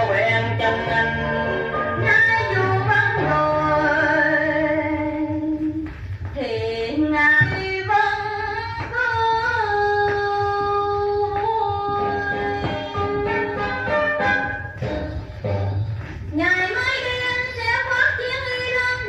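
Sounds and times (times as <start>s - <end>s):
light instrumental accompaniment: 11.3s - 16.4s.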